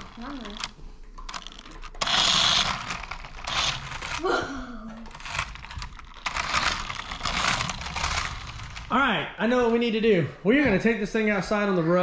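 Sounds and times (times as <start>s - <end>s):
toy electric motor running: 0.0s - 0.7s, 1.3s - 4.4s, 5.1s - 9.0s.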